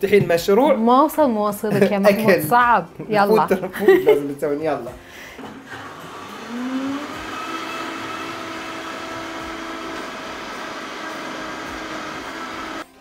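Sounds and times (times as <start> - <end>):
blender motor whining: 5.6 - 13.0.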